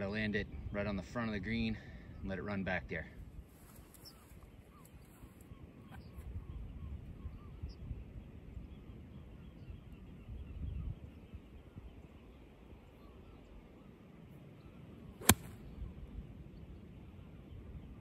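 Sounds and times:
golf club striking ball: 0:15.2 - 0:15.7.

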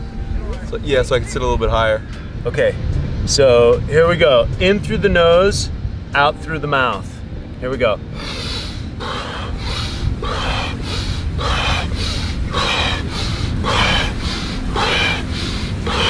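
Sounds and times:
steady low hum: 0:00.0 - 0:16.0
rapid deep breathing: 0:08.1 - 0:16.0.

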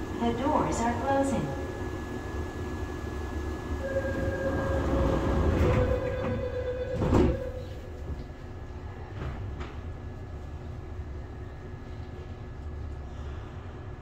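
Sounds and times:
low carriage hum: 0:00.0 - 0:14.0
steady door warning tone: 0:01.5 - 0:08.1
train doors thumping shut: 0:04.0 - 0:08.2.

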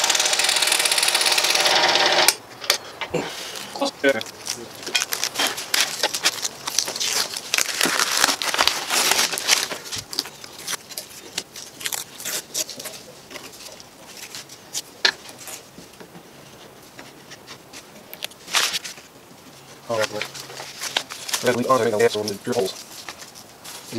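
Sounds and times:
plywood pieces rustling and clicking: 0:02.5 - 0:19.2, 0:19.9 - 0:23.9.

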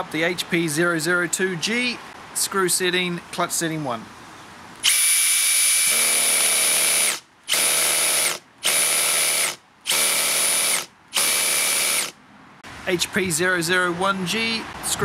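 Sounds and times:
drill clutch slipping rattle: 0:04.8 - 0:12.2
drill motor whine: 0:04.8 - 0:12.2.

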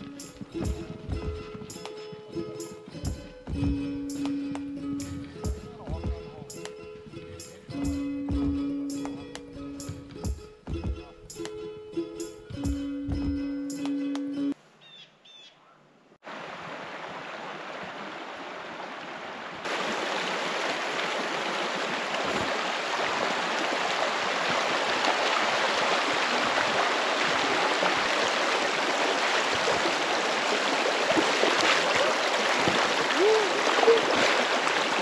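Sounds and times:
creek rushing over stones: 0:00.0 - 0:03.2, 0:16.2 - 0:35.0.

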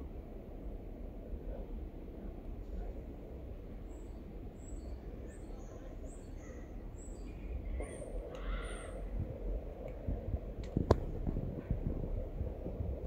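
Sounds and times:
low steady rumble: 0:00.0 - 0:13.0
harsh caw-like bird call: 0:08.3 - 0:09.1.

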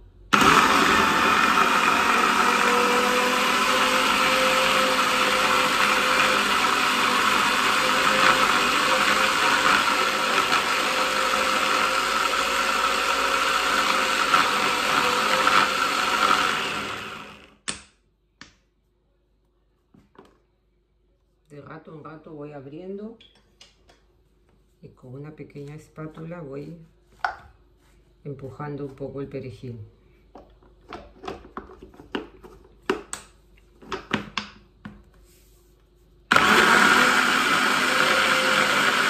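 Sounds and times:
hand blender motor chopping: 0:00.3 - 0:17.6, 0:36.3 - 0:39.0.

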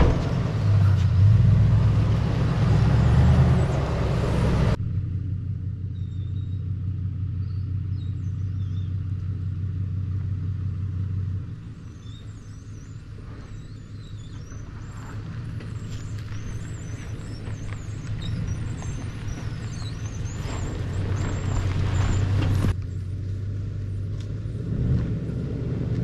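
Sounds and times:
engine running with low hum: 0:00.0 - 0:26.0
birds chirping faintly: 0:11.6 - 0:23.0.

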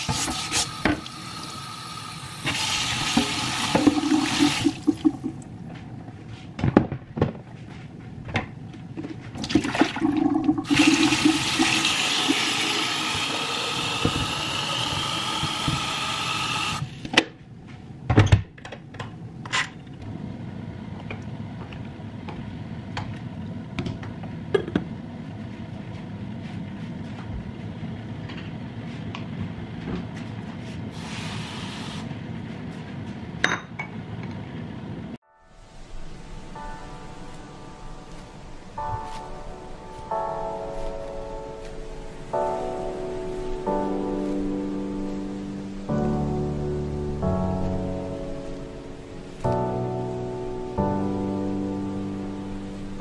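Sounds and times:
tap water running into sink: 0:02.4 - 0:05.4, 0:09.4 - 0:16.8.

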